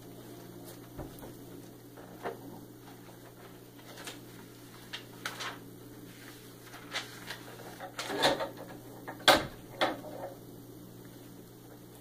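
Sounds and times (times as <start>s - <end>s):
paper pages rustling: 2.0s - 8.2s.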